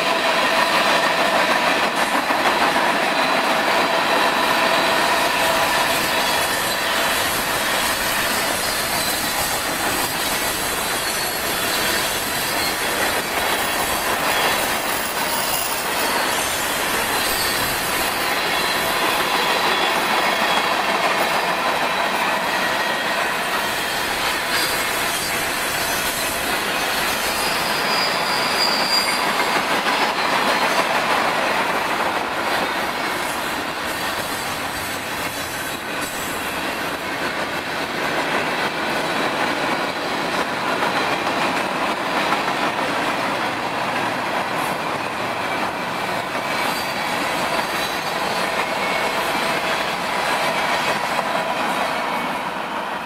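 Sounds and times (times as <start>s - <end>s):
train wheels clattering on rails: 0.0s - 53.0s
wheel flanges squealing: 0.6s - 30.9s.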